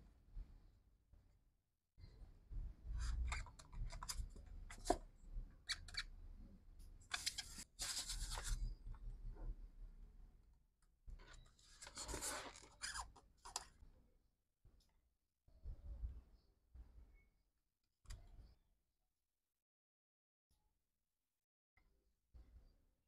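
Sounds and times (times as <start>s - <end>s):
styrofoam scraping plastic: 7.1s - 8.6s, 11.6s - 13.1s.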